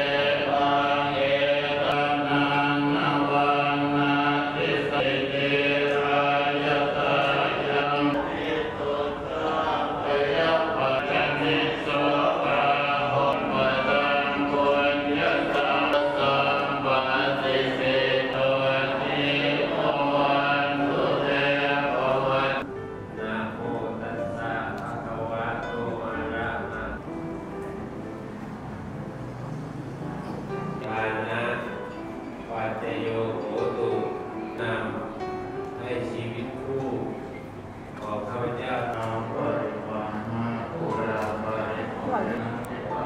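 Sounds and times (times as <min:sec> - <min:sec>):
voices chanting in unison: 0:00.0 - 0:22.7.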